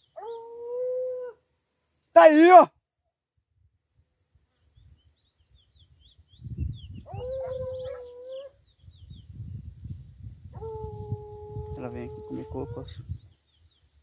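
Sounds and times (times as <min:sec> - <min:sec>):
distant dog howling: 0:07.0 - 0:08.6, 0:10.5 - 0:13.0.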